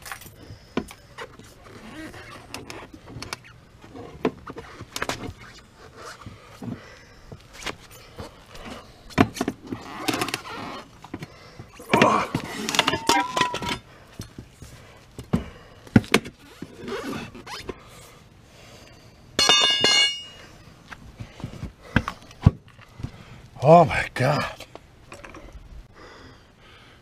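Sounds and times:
tire iron clanking on steel rim: 19.4 - 20.5.

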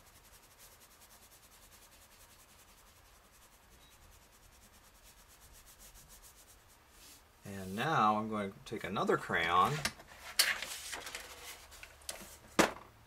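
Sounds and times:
crayon scratching on paper: 0.0 - 7.8.

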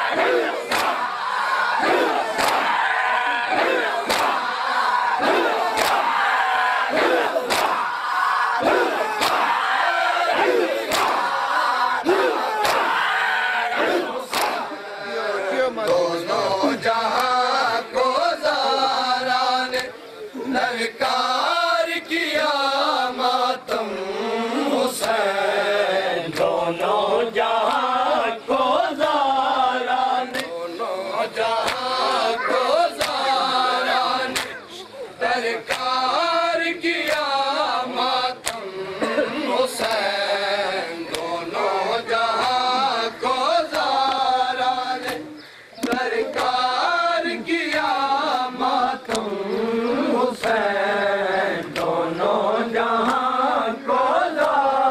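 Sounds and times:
men chanting a lament: 0.0 - 54.9
hands slapping chests: 0.2 - 1.1, 1.8 - 2.8, 3.6 - 4.5, 5.2 - 6.2, 6.9 - 8.0, 8.6 - 9.6, 10.3 - 11.4, 12.0 - 13.0, 13.8 - 14.8, 15.8 - 16.2, 17.1 - 17.4, 25.0 - 25.2, 26.3 - 27.0, 30.3 - 30.7, 31.4 - 33.4, 34.3 - 34.6, 35.6 - 36.2, 37.0 - 37.5, 38.3 - 38.8, 39.6 - 40.2, 41.0 - 41.4, 42.3 - 44.4, 45.0 - 46.8, 47.7 - 49.4, 50.3 - 50.7, 51.5 - 52.1, 53.0 - 53.4, 54.3 - 54.9.

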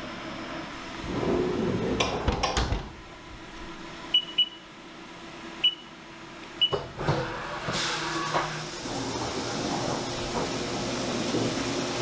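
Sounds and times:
sliding door rolling shut: 1.0 - 2.9, 6.8 - 12.0
short keypad beeps: 4.2 - 4.6.

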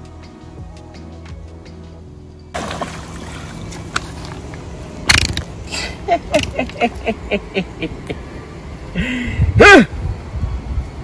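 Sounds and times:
fish splashing and thrashing: 2.6 - 6.6.

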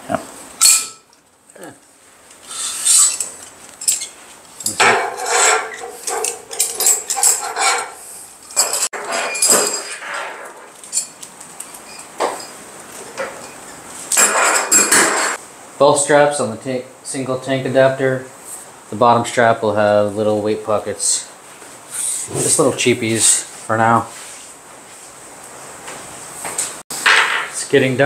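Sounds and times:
metal buckles clinking and rattling: 2.9 - 15.4.

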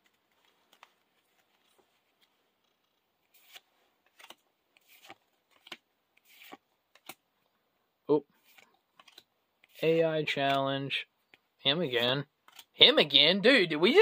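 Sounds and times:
trading cards swishing: 3.3 - 7.2, 8.4 - 9.9.

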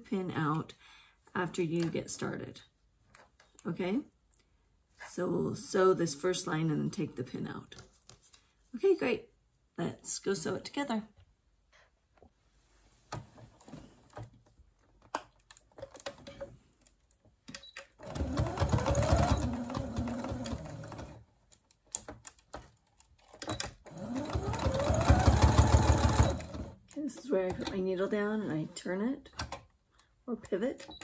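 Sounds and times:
sewing machine whine: 18.0 - 21.2, 23.8 - 26.8.

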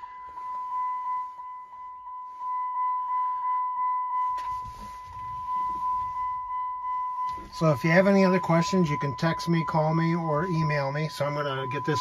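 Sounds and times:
car warning chime dinging: 0.0 - 12.0
rustling: 4.4 - 6.5.

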